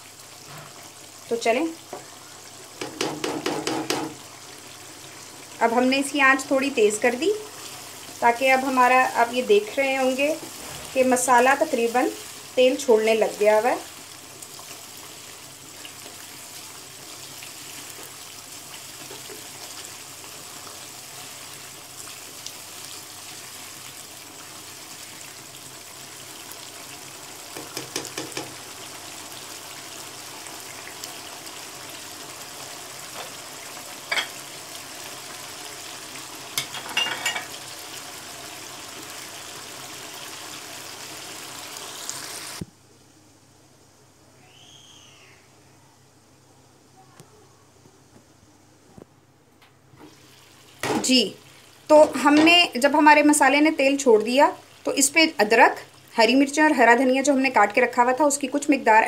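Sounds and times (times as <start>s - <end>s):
chicken sizzling in oil: 0.0s - 42.6s, 50.0s - 59.0s
spatula scraping and knocking pan: 2.8s - 4.2s.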